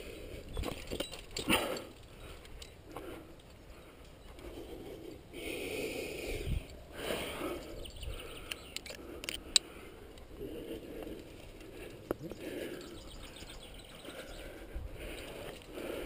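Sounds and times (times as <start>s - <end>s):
carabiner clicking: 8.4s - 9.7s.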